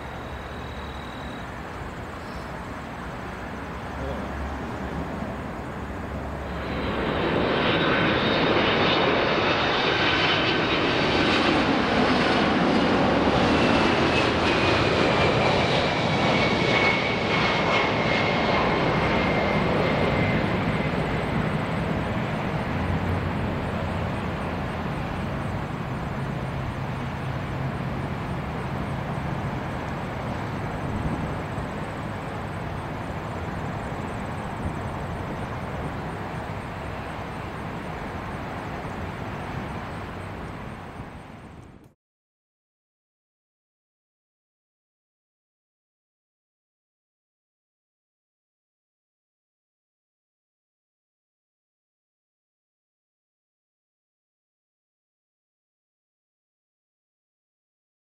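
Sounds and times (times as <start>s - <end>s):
jet engine rumble: 0.0s - 42.0s
jet engine whine: 0.0s - 42.0s.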